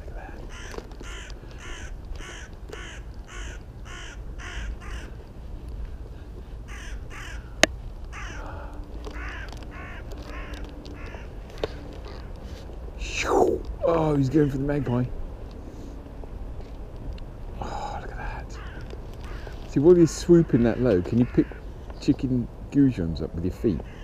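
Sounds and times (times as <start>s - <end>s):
crows cawing: 0.0s - 5.2s, 6.6s - 12.7s, 14.2s - 15.1s, 17.6s - 22.0s, 23.7s - 24.0s.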